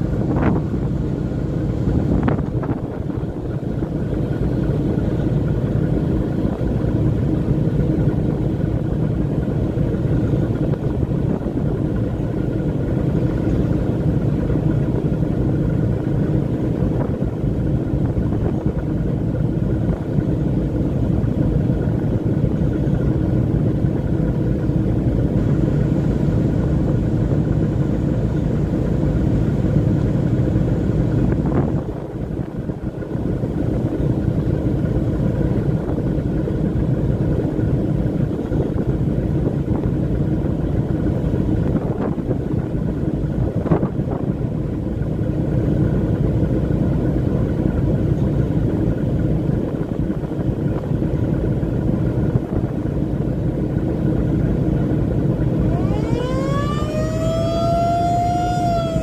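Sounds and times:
boat engine drone: 0.0s - 59.0s.

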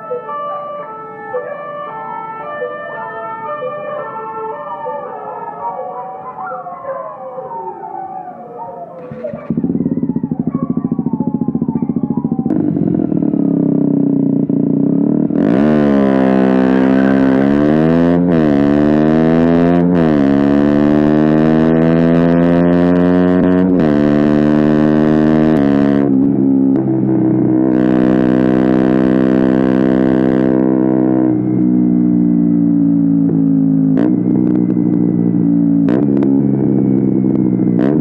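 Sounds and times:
motorcycle engine revving: 9.0s - 38.0s.

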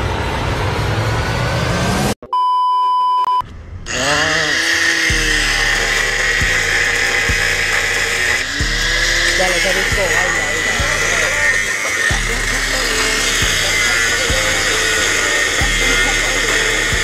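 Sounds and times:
electronic beep: 2.2s - 3.4s
angle grinder cutting steel: 3.9s - 17.0s.

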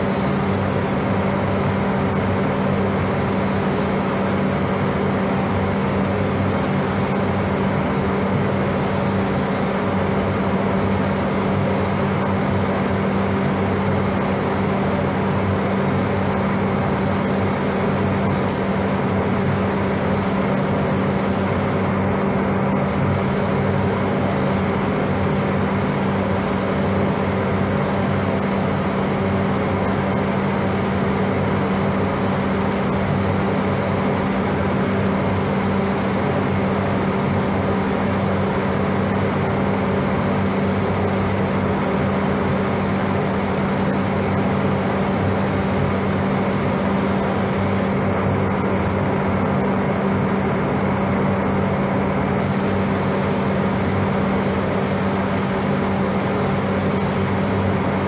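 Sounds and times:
spray gun hissing: 0.0s - 58.0s
ventilation fans humming: 0.0s - 58.0s.

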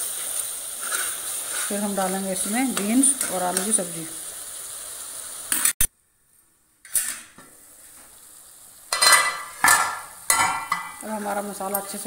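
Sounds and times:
masala sizzling in oil: 0.0s - 12.0s
metal lid and spatula clanks: 8.9s - 11.0s.

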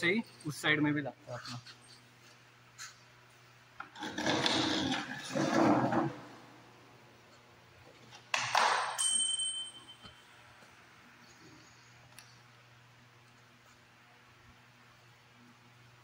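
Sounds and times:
high ringing tone: 9.0s - 10.5s.

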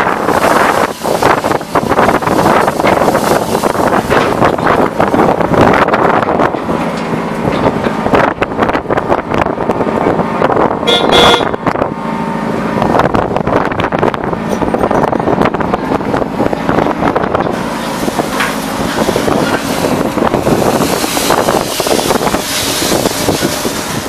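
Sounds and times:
steady mechanical drone: 0.0s - 24.0s
crunching and clatter: 1.2s - 8.0s.

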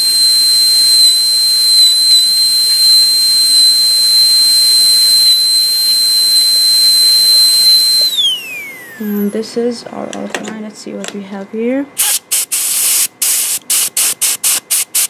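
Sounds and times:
dental drill whining: 0.0s - 9.5s, 12.0s - 15.0s
air hiss: 12.0s - 15.0s.

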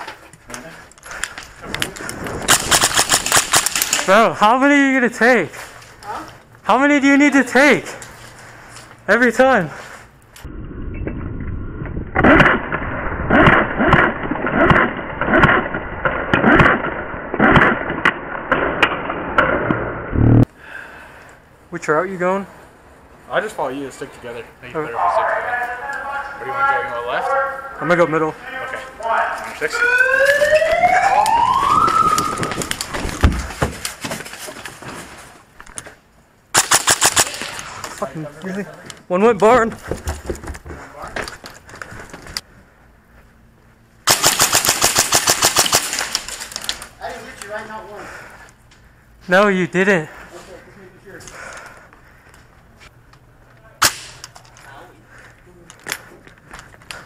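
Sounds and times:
sharp cracks: 1.1s - 4.2s, 12.1s - 20.1s, 36.5s - 37.9s, 44.1s - 47.0s, 53.8s - 54.4s
airsoft rifle shots: 2.5s - 4.1s, 12.2s - 19.8s, 36.5s - 37.7s, 44.1s - 46.4s, 53.8s - 54.2s
siren tone rising: 10.4s - 17.9s, 19.7s - 20.5s, 29.6s - 32.9s.

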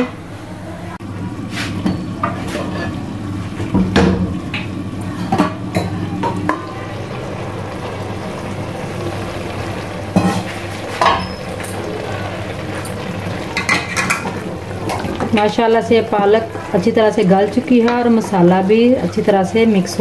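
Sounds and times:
metal pot lid clanking: 10.1s - 11.9s, 12.7s - 15.5s.

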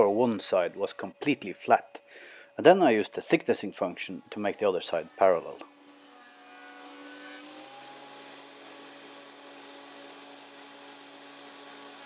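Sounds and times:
planer thicknesser running: 3.8s - 12.0s.

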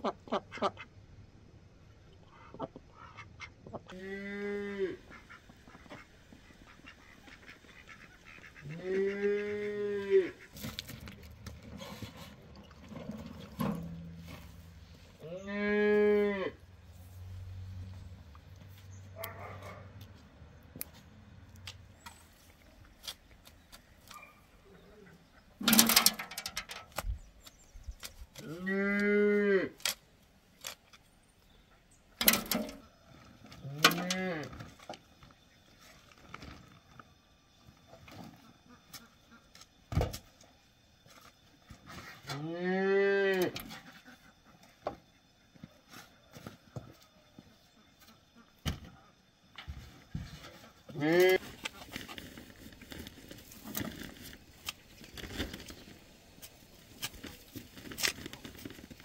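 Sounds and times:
cow mooing: 3.9s - 5.0s, 8.6s - 10.4s, 15.2s - 16.6s, 28.4s - 29.8s, 42.4s - 43.6s
shovel clanking on metal wheelbarrow: 10.5s - 14.6s, 25.6s - 27.1s, 32.2s - 32.8s.

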